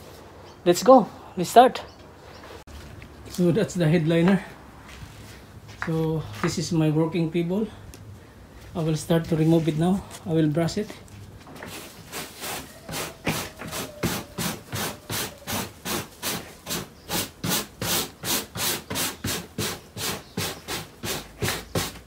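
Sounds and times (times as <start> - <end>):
stiff brush scrubbing board: 11.7 - 22.0.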